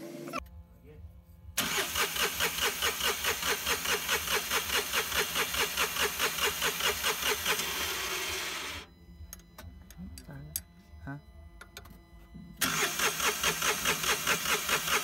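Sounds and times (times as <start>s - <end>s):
starter cranking diesel engine: 1.6s - 8.8s, 12.6s - 15.0s.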